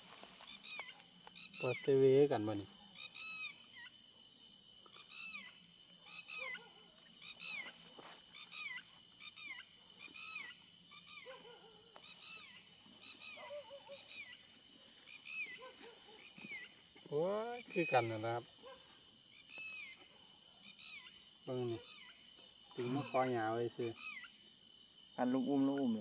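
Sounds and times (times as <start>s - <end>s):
birds calling: 0.0s - 4.0s, 4.9s - 18.8s.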